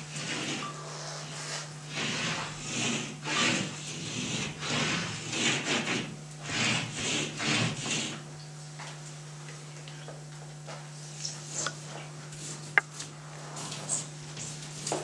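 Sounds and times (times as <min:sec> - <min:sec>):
drawing tool scraping wall: 0:00.0 - 0:08.3.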